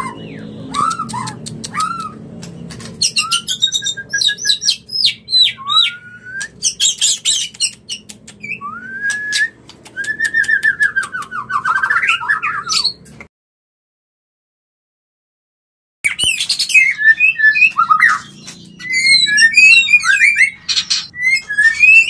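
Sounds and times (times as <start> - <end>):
bird singing whistles and trills: 0.0 - 2.2, 3.0 - 13.0, 16.1 - 22.0
sharp bird clicks: 0.7 - 5.6, 6.3 - 12.4.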